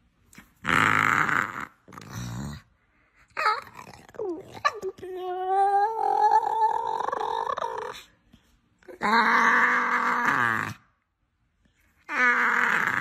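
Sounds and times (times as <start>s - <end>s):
dog growly grunts: 0.6s - 2.7s, 12.1s - 13.0s
dog whining moan: 3.3s - 8.1s, 8.8s - 10.8s, 12.0s - 13.0s.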